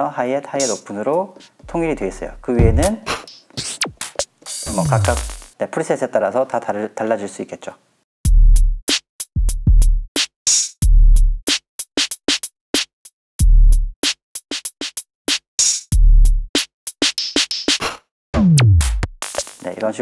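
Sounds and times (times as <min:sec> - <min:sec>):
hi-hat and snare hits: 0:00.6 - 0:05.6, 0:08.3 - 0:20.0
deep kick drum: 0:01.6 - 0:03.0, 0:08.3 - 0:08.8, 0:09.4 - 0:10.1, 0:10.8 - 0:11.4, 0:13.4 - 0:13.9, 0:16.0 - 0:16.5, 0:18.4 - 0:19.2.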